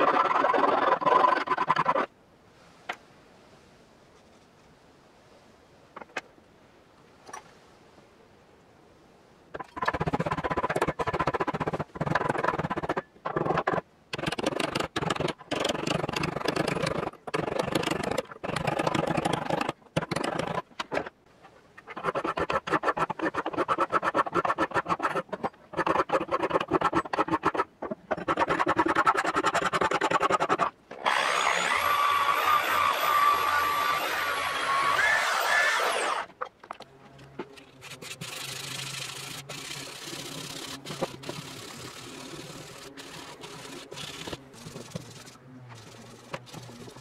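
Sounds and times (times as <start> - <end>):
abrasive disc whining: 31.0 - 36.4.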